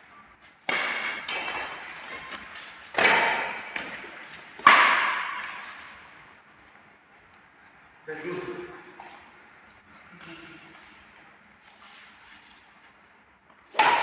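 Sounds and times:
racket hitting shuttlecock: 0.6 - 6.2, 13.6 - 14.0.

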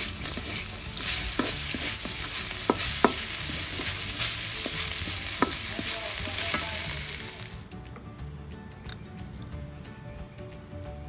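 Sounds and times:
meat sizzling in a wok: 0.0 - 7.6
wooden spatula scraping wok: 0.0 - 7.6.

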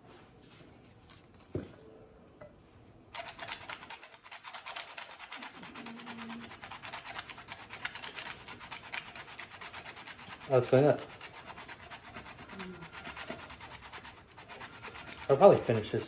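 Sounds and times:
cheese grater scraping: 3.2 - 16.0.

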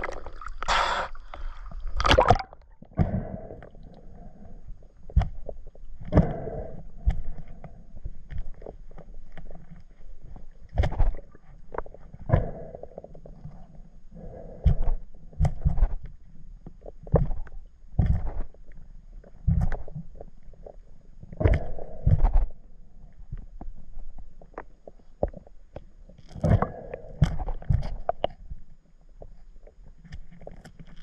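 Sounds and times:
underwater water rush: 0.0 - 3.6
underwater knocks and thumps: 2.0 - 3.3, 10.3 - 12.6, 17.0 - 18.5, 26.3 - 28.5.

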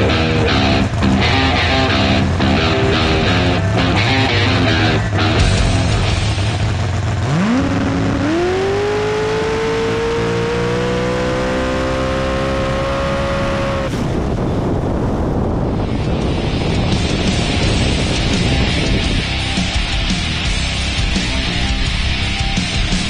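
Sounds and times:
rushing noise: 0.0 - 10.6, 12.4 - 23.0
drag car engine at full throttle: 0.0 - 23.0.

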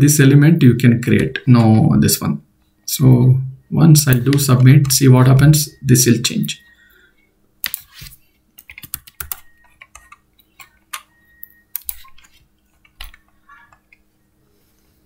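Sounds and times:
computer keyboard keystrokes: 7.6 - 7.9, 8.6 - 14.0.

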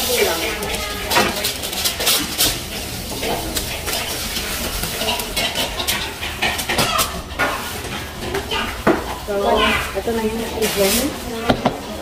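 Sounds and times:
dishes and utensils clinking: 0.0 - 12.0
tap running: 0.7 - 10.2.

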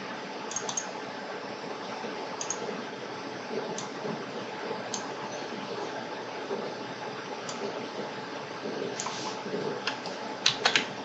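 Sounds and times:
faint sharp computer clicks: 0.5 - 0.9, 2.4 - 2.6.

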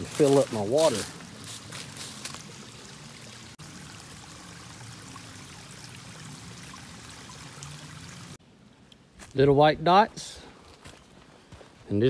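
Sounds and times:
creek water rushing: 0.0 - 8.4.

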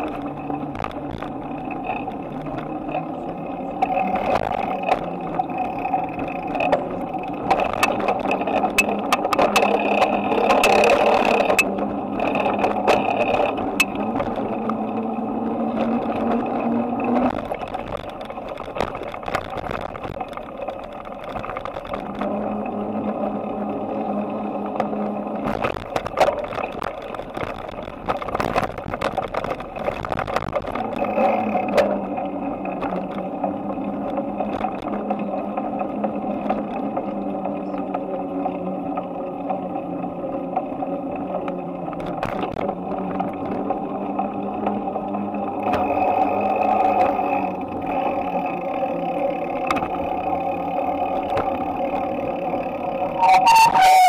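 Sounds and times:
camera rattling and clicking: 0.0 - 22.4, 24.8 - 35.2, 41.9 - 43.8
bicycle rolling hum: 0.0 - 54.0.

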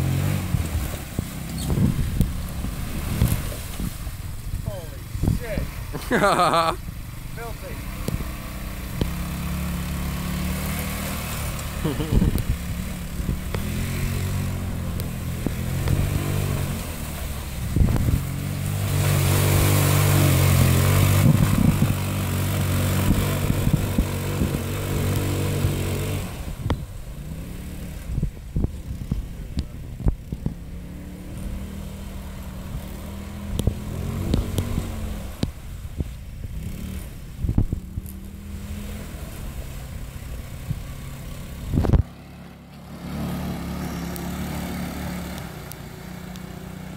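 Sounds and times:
go-kart engine revving: 0.0 - 46.9.

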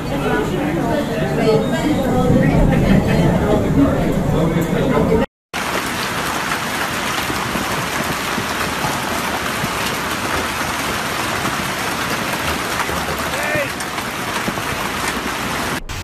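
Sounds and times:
hail and heavy rain on pavement: 5.5 - 16.0.

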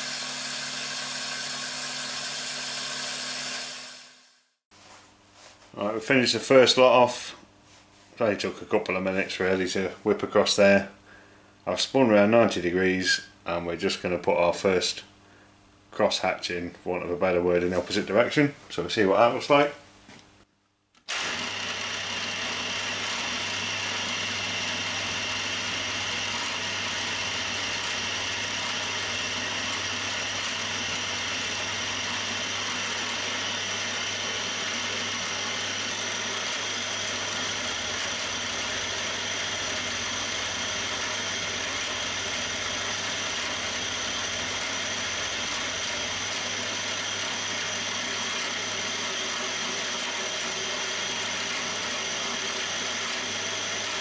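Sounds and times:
milling machine cutting metal: 0.0 - 4.4, 21.1 - 54.0.

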